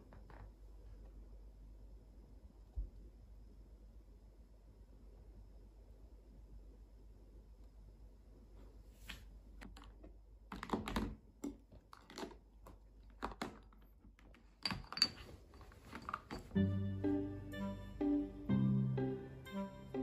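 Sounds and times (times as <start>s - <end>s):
background music: 16.5s - 20.0s.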